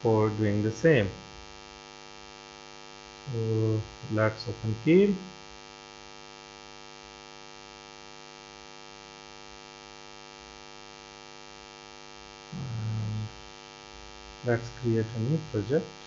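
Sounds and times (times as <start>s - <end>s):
person speaking: 0.0s - 1.2s, 3.3s - 5.3s, 12.6s - 13.5s, 14.4s - 16.0s
electrical mains hum: 0.0s - 16.0s.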